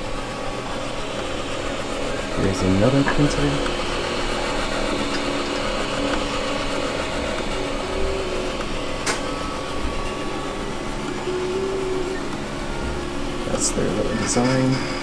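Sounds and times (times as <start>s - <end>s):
stepper motors whirring: 0.0s - 15.0s
sharp click: 9.0s - 9.3s.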